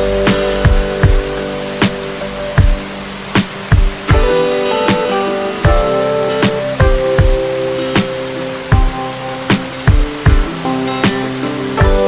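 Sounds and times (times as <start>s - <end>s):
music with held notes: 0.0s - 12.0s
drum beat: 0.3s - 2.8s, 3.4s - 11.2s, 11.8s - 12.0s.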